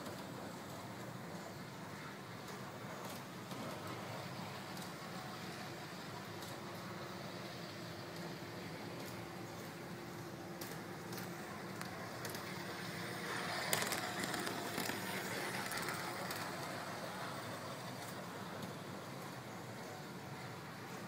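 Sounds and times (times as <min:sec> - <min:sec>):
model train motor hum: 0:00.0 - 0:21.0
model train wheels rumbling on rails: 0:00.0 - 0:21.0.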